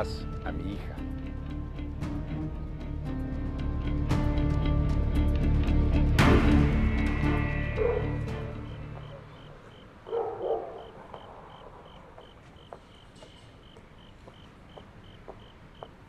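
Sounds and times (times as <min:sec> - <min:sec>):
soundtrack music: 0:00.0 - 0:09.8
cricket chirping: 0:06.8 - 0:16.0
dog barking: 0:07.8 - 0:08.2, 0:10.0 - 0:12.0.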